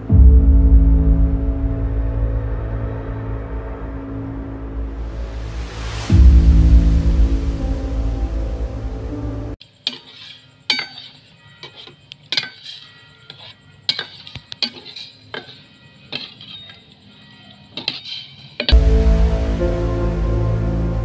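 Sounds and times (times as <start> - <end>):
scary background music: 0.0 - 9.6, 18.7 - 21.0
metal utensil clinking on pot: 9.8 - 17.0, 17.7 - 18.7.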